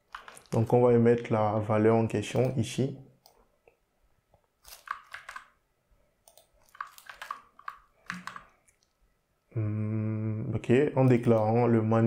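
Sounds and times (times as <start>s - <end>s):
keyboard and mouse clicking: 0.0s - 1.3s, 2.3s - 2.6s, 4.7s - 5.6s, 6.2s - 8.9s.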